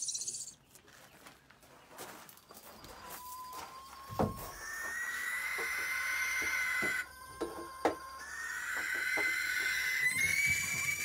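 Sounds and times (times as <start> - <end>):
owl hiss-screech: 4.6 - 7.2, 8.1 - 11.0.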